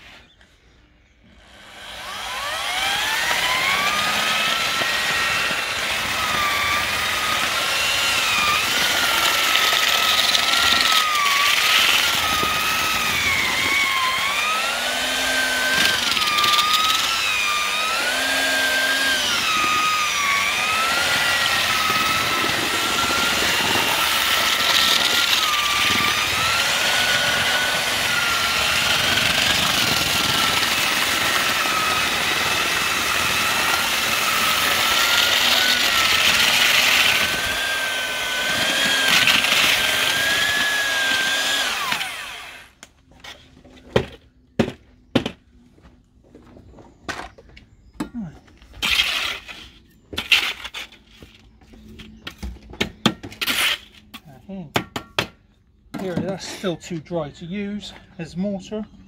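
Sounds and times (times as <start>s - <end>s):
paddle mixer whining: 1.2s - 42.8s.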